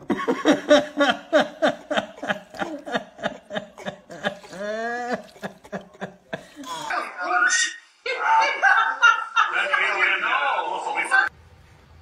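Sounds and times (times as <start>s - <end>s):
person laughing: 0.0s - 7.2s.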